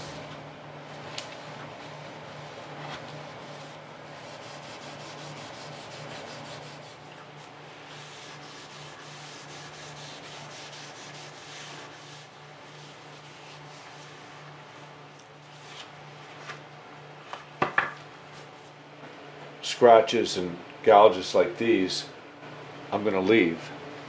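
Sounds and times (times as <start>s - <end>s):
sandpaper rubbing on wood: 2.4s - 7.0s, 7.8s - 14.8s.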